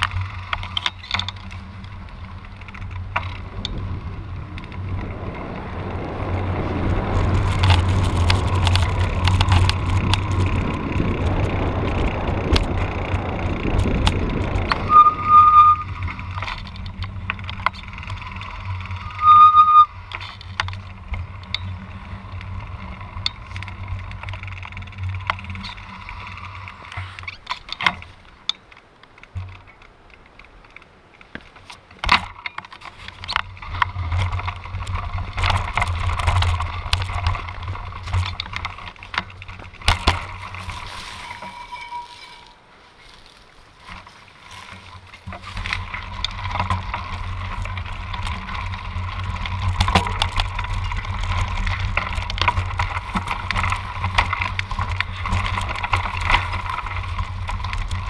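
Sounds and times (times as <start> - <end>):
bicycle tyre and road noise: 0.0 - 58.0
bike rattling: 0.0 - 58.0
short high squeals: 14.8 - 16.2, 19.0 - 20.0.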